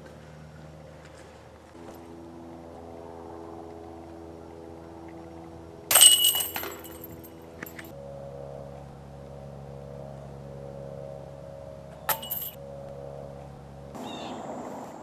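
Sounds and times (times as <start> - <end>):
disc striking metal chains: 5.9 - 7.9, 12.1 - 12.6.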